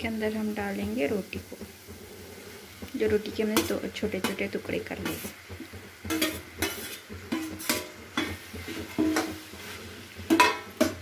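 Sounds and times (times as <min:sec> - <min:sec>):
light sizzle: 0:00.0 - 0:11.0
spoon scraping a metal pan: 0:03.5 - 0:11.0.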